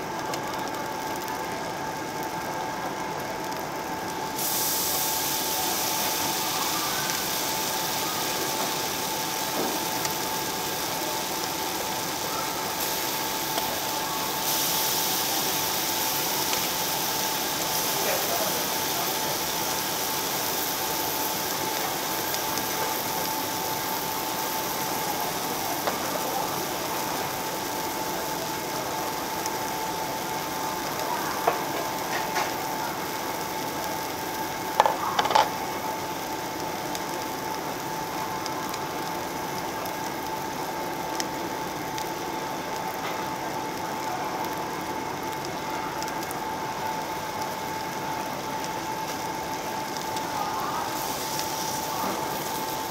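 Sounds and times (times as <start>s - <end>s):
meat sizzling on grill plate: 0.1s - 52.9s.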